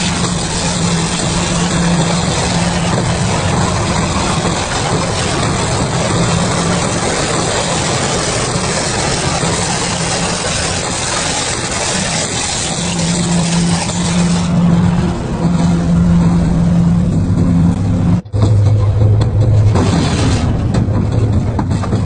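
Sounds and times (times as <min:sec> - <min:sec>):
shredder tearing plastic: 0:00.0 - 0:14.6
motor hum: 0:00.0 - 0:22.0.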